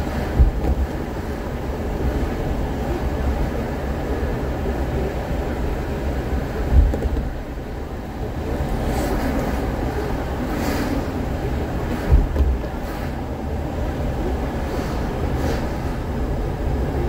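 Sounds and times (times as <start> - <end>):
road and tyre rumble: 0.0 - 17.0
low thump: 0.3 - 0.9, 6.7 - 7.3, 12.0 - 12.7.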